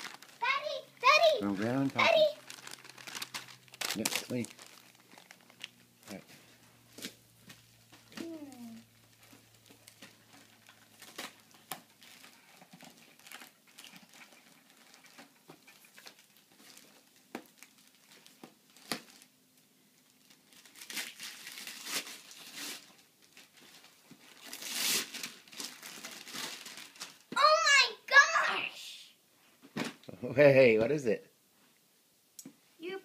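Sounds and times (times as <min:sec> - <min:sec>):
wrapping paper crinkling and tearing: 0:00.0 - 0:06.2, 0:06.9 - 0:27.6.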